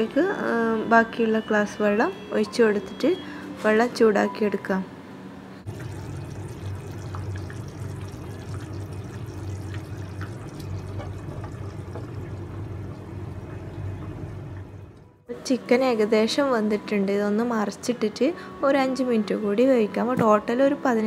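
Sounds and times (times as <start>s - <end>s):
broth bubbling in a pan: 5.7s - 15.0s.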